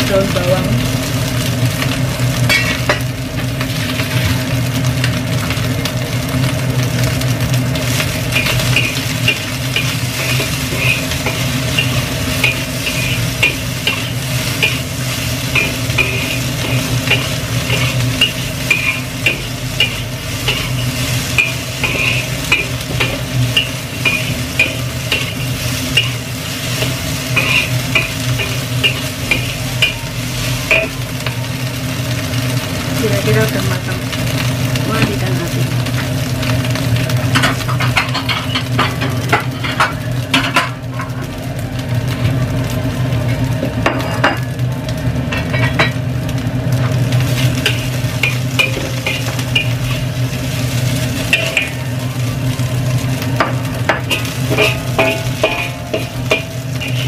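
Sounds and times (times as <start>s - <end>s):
rice sizzling in a wok: 0.0s - 57.0s
steady low hum: 7.4s - 31.6s, 46.6s - 57.0s
spatula scraping a wok: 7.8s - 31.4s, 47.1s - 57.0s.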